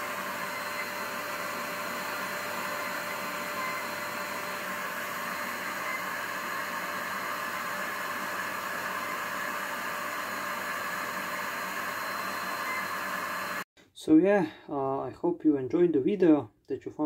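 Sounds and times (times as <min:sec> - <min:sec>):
air compressor running: 0:00.0 - 0:13.6.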